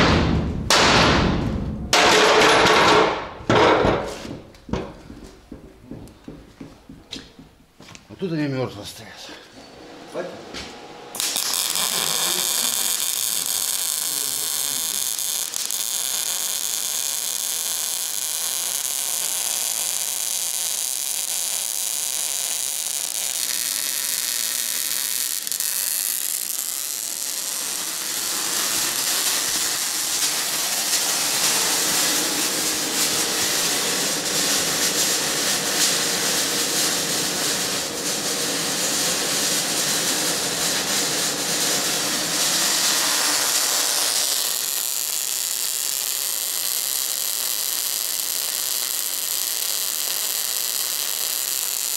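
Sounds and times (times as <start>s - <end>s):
angle grinder on metal: 11.2s - 36.6s, 38.3s - 51.9s.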